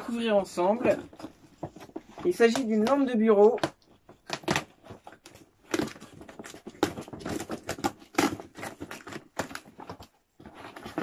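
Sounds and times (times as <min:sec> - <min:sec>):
cardboard box tearing and crinkling: 0:00.1 - 0:11.0.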